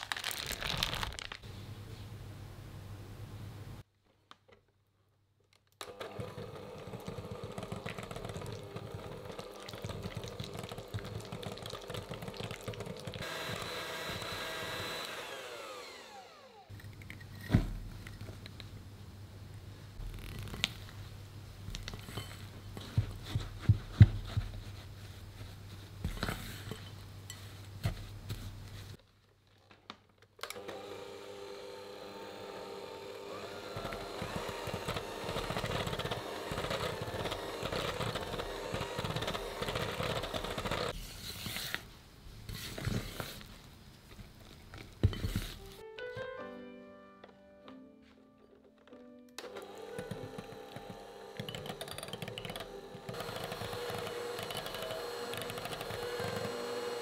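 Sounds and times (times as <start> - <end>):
electric hand mixer motor: 5.8 - 16.8, 30.5 - 41.0, 49.4 - 57.0.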